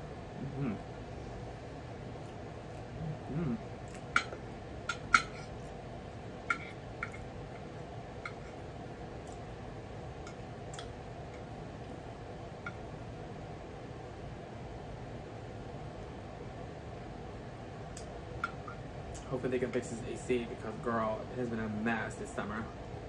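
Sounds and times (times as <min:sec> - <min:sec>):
faint hum: 0:00.0 - 0:23.0
low mouth sound: 0:00.3 - 0:00.9, 0:02.8 - 0:03.8.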